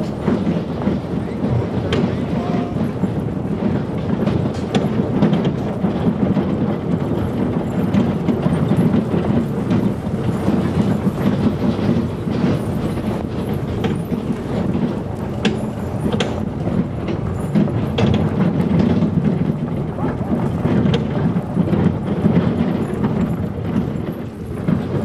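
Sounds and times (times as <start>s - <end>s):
cart wheels rumbling on gravel: 0.0s - 25.0s.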